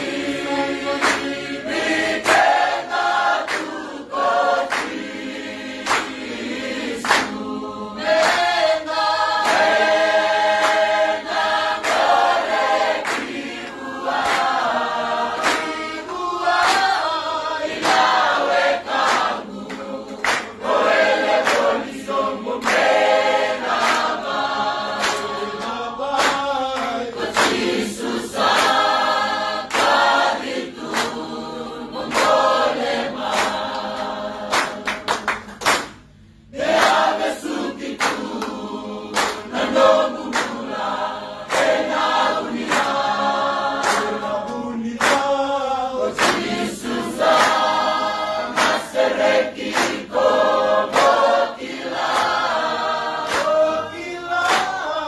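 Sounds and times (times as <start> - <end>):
choir singing in harmony: 0.0 - 35.3, 36.1 - 55.0.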